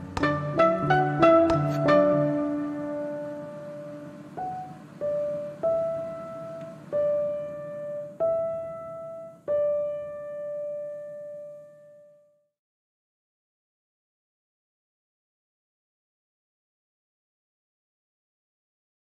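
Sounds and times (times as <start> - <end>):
slow solo piano notes: 0.0 - 12.2.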